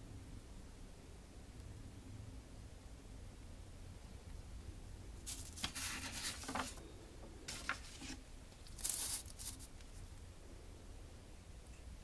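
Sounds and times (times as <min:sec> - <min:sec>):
paper pages rustling: 0:05.3 - 0:06.9, 0:07.5 - 0:09.7.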